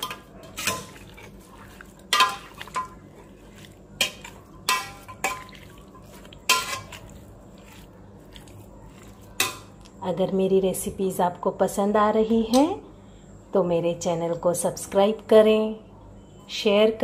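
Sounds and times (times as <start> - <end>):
spoon clinking on metal pot: 0.0 - 1.4, 2.0 - 3.0, 4.0 - 7.1, 9.3 - 9.8
soft stirring: 0.0 - 10.0.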